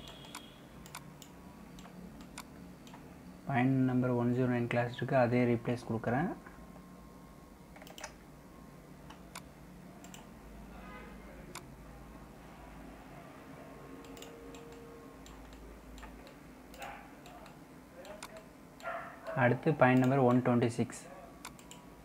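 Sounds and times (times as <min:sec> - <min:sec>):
computer mouse clicks: 0:00.0 - 0:03.0, 0:07.8 - 0:08.2, 0:09.1 - 0:10.3, 0:14.0 - 0:18.9, 0:21.4 - 0:21.9
low steady hum: 0:00.0 - 0:22.0.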